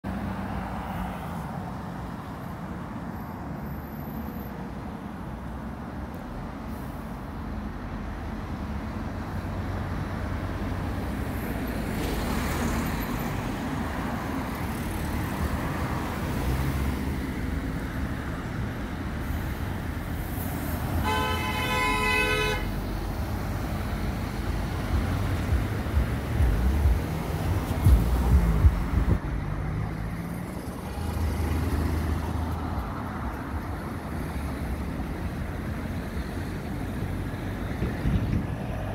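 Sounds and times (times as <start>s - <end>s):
road traffic: 0.0s - 38.9s
bus diesel engine rumble: 4.7s - 38.9s
vehicle horn: 21.0s - 22.8s.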